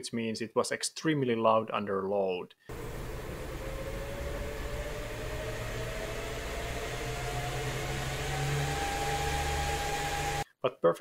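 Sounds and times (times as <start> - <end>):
graphics card fan rushing: 2.7 - 10.4
low hum: 2.7 - 10.4
rising electronic whine: 2.7 - 10.4.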